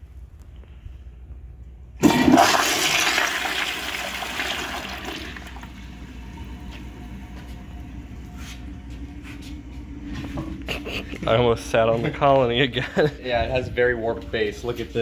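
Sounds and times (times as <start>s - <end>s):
toilet flushing whoosh: 2.0s - 7.2s.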